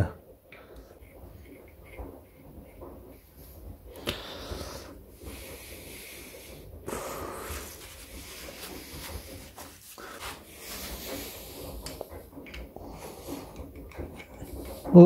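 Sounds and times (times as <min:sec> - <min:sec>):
cloth rubbing on engine: 0:06.9 - 0:11.8.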